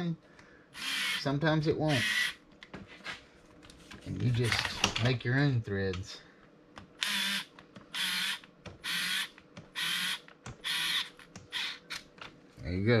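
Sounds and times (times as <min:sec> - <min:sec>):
electric screwdriver driving screw: 0:00.8 - 0:01.2, 0:01.9 - 0:02.4, 0:07.0 - 0:12.0.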